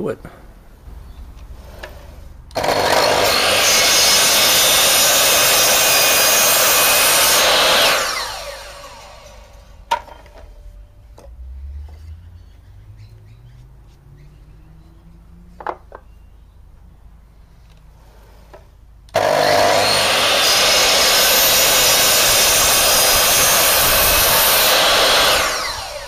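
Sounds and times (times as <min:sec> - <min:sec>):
mitre saw running and spinning down: 0:02.5 - 0:10.2, 0:19.1 - 0:26.0.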